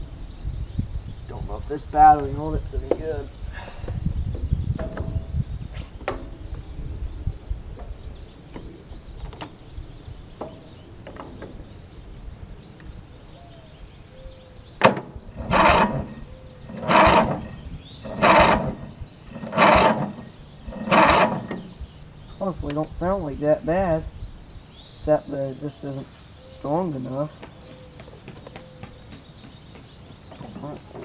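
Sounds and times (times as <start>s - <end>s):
starter motor cranking engine: 14.8s - 21.9s.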